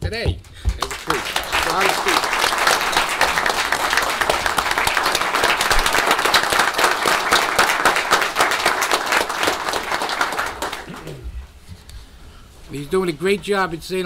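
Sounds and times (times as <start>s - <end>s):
audience applauding: 0.6s - 11.2s.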